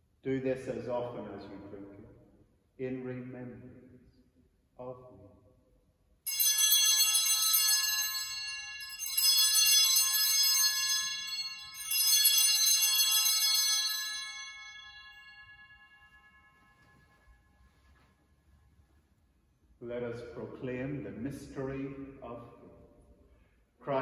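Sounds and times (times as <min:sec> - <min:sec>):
small bells jingling: 0:06.3 - 0:17.6.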